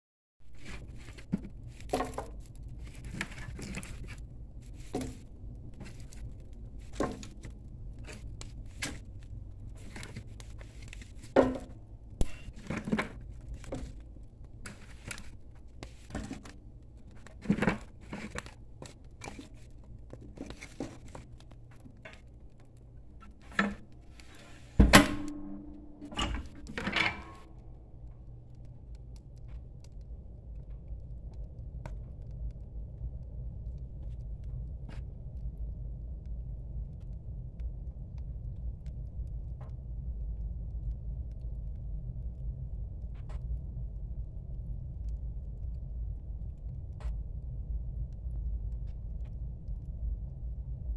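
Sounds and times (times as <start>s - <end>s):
low steady hum: 0.5s - 50.9s
wood fire crackling and popping: 0.6s - 50.9s
stove knocks: 24.8s - 27.5s.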